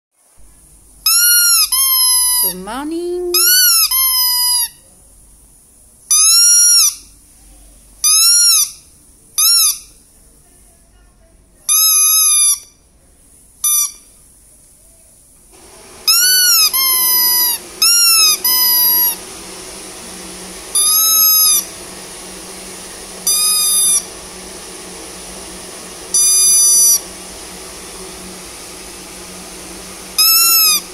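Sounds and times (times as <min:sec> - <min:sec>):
squeaky toy squeaking: 0:08.0 - 0:08.8
faint steady hum: 0:12.6 - 0:30.9.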